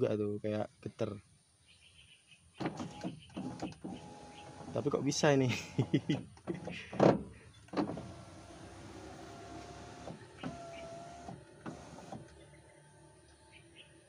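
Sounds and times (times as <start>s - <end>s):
window motor click: 2.6s - 5.2s, 7.7s - 12.4s
electric window motor whining: 2.6s - 13.2s.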